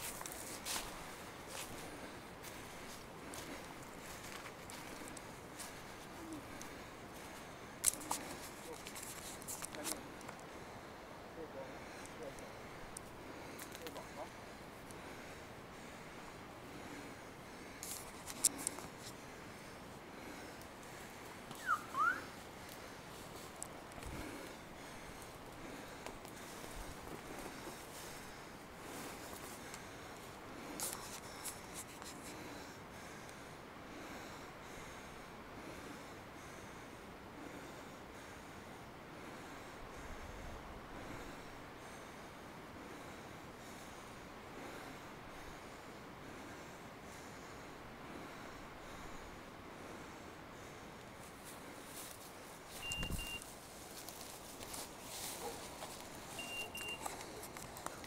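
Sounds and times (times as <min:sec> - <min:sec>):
footsteps rustling through leaves: 0:00.0 - 0:06.1, 0:51.3 - 0:58.0
beeper collar double beeps: 0:52.8 - 0:53.4, 0:56.4 - 0:57.0.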